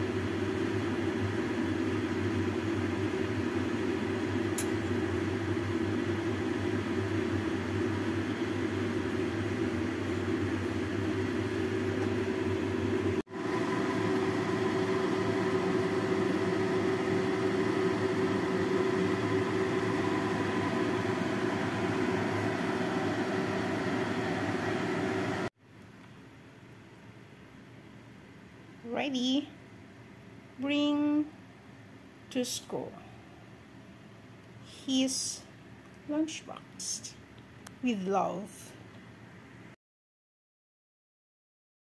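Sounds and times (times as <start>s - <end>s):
fan motor humming: 0.0s - 26.1s.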